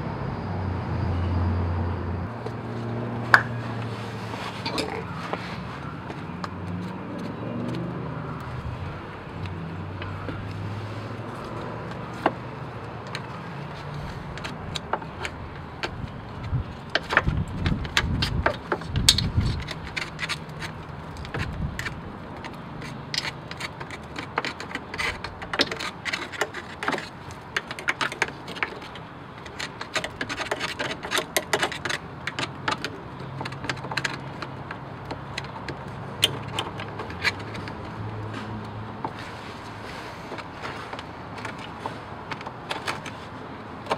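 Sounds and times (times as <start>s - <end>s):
screwdriver scraping dried mud: 10.0s - 43.3s.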